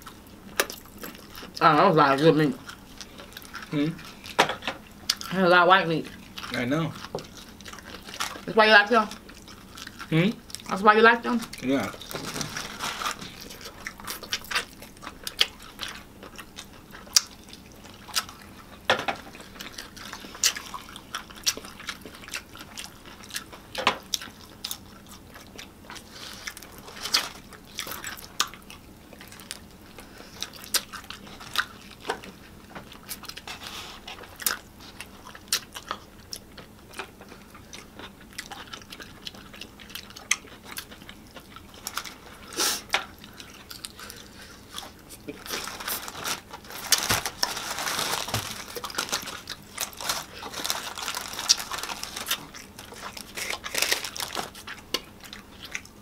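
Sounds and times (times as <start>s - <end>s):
chewing and crunching fried chicken: 0.0s - 56.0s.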